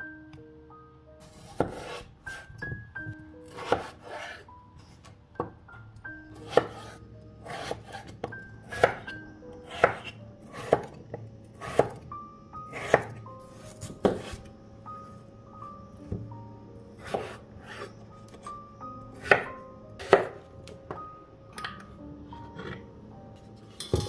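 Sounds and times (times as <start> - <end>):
background music with bell notes: 0.0 - 24.0
knife chopping on wooden board: 1.3 - 2.4, 3.5 - 4.4, 6.5 - 9.1, 9.7 - 11.0, 11.6 - 12.0, 12.7 - 13.2, 13.8 - 14.4, 19.2 - 20.4.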